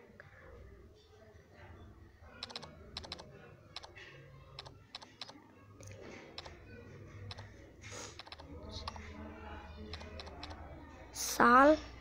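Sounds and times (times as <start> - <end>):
phone keyboard tapping clicks: 2.4 - 3.2, 4.6 - 5.4, 8.2 - 9.0, 9.9 - 10.6.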